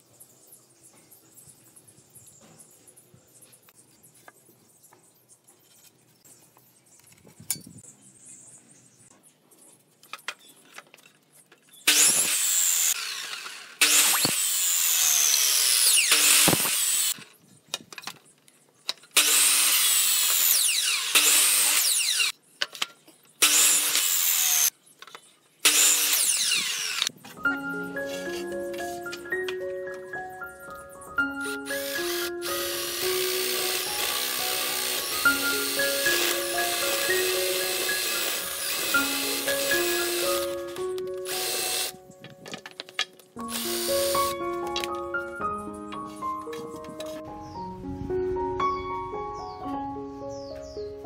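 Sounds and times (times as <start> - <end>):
miter saw cutting wood: 11.9 - 17.2, 19.2 - 22.3, 23.4 - 24.7, 25.6 - 27.1, 31.4 - 42.0, 43.4 - 44.4.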